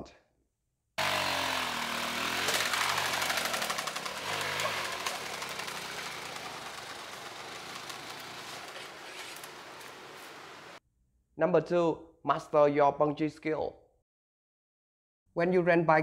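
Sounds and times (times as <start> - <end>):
dirt bike engine revving: 1.0 - 10.8.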